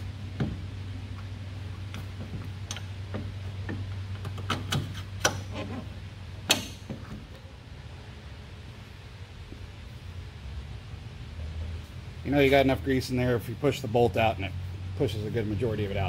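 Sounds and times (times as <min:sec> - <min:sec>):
low steady hum: 0:00.0 - 0:16.0
metal clicks and knocks: 0:01.9 - 0:05.7.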